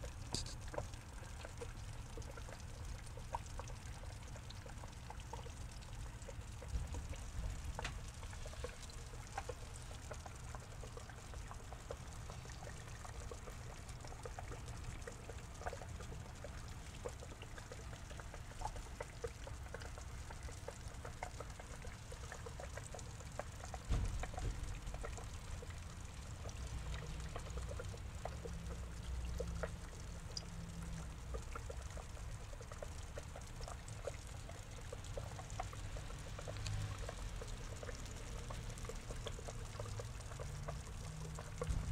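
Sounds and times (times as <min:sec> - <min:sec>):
water pouring into pond: 0:00.0 - 0:41.9.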